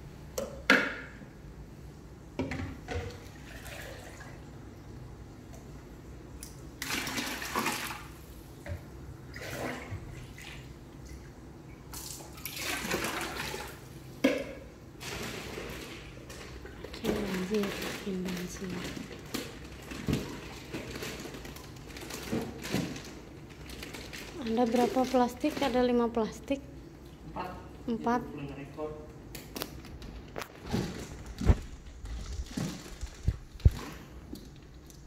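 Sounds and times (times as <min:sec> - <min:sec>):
water pouring and splashing: 0:03.0 - 0:04.4, 0:06.8 - 0:08.1, 0:09.3 - 0:11.2, 0:11.9 - 0:13.9, 0:30.7 - 0:35.0.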